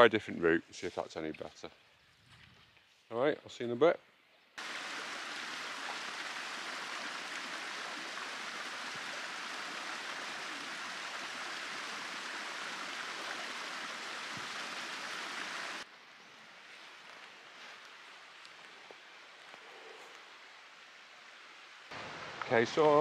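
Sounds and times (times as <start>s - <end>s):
running water rushing: 4.6s - 23.0s.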